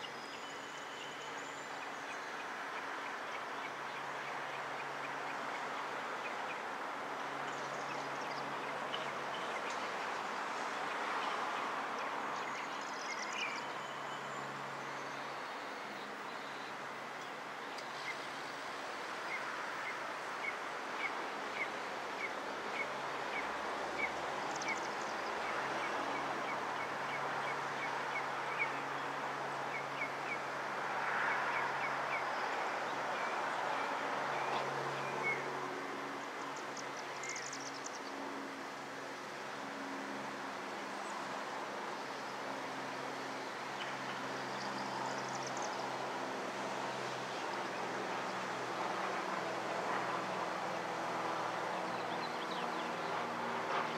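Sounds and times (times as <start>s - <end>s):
distant traffic drone: 0.0s - 53.9s
bird chirping: 36.6s - 38.1s.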